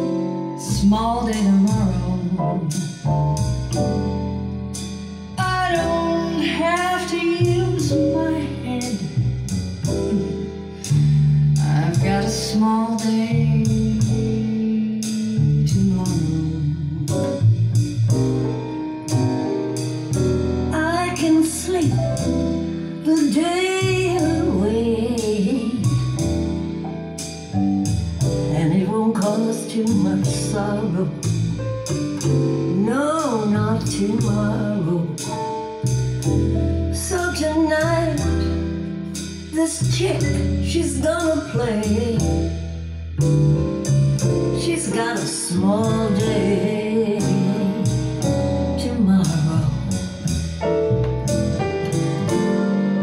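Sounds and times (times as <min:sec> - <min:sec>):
recorded song over loudspeakers: 0:44.3 - 0:49.7.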